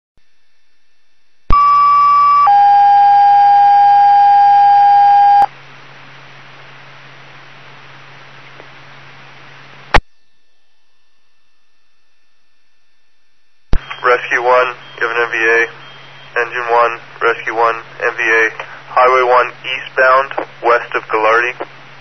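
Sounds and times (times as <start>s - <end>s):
two-tone radio alert: 1.5s - 5.5s, 13.8s - 21.6s
radio hiss with low hum: 5.1s - 10.0s, 13.7s - 22.0s
sharp radio click: 13.7s - 15.5s, 20.3s - 21.7s.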